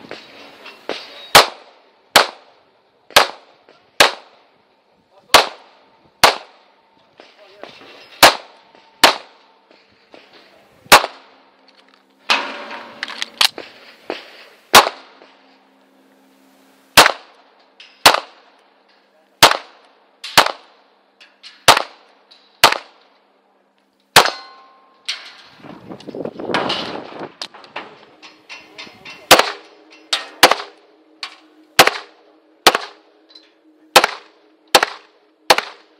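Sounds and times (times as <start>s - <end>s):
pistol shots: 1.3s - 2.5s, 3.1s - 4.4s, 5.3s - 6.6s, 8.2s - 9.4s, 10.9s - 11.3s, 14.7s - 15.2s, 17.0s - 17.4s, 18.0s - 18.5s, 19.4s - 20.8s, 21.6s - 23.0s, 24.2s - 24.5s, 29.3s - 29.7s, 30.3s - 30.8s, 31.8s - 33.0s, 33.9s - 35.9s.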